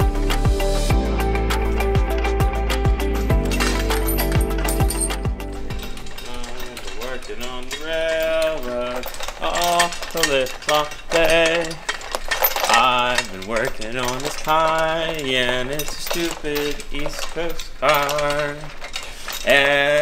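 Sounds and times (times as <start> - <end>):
metallic chain and tool clinks: 3.1 - 20.0
person singing a melody: 19.4 - 20.0.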